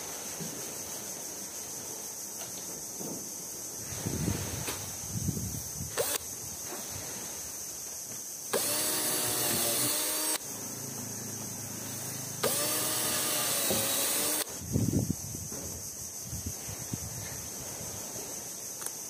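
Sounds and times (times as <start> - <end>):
cordless drill boring into wood: 6.0 - 6.2, 8.5 - 10.4, 12.4 - 14.5.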